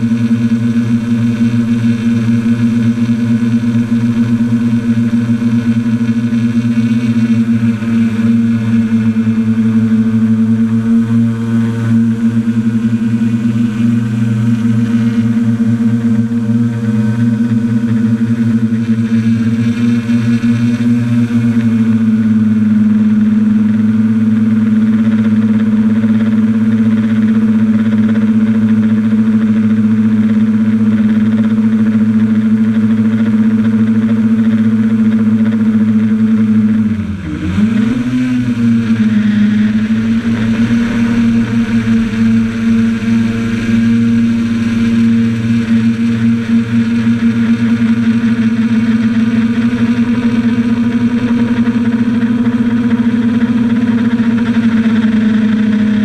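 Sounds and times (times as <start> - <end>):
drone propellers humming: 0.0 - 56.0.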